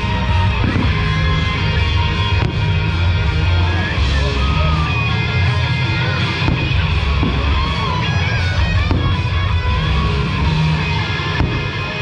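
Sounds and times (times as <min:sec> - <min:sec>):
loud rock music with heavy bass: 0:00.0 - 0:12.0
firework bang: 0:00.5 - 0:01.2, 0:06.4 - 0:07.9, 0:08.8 - 0:09.5, 0:11.4 - 0:11.9.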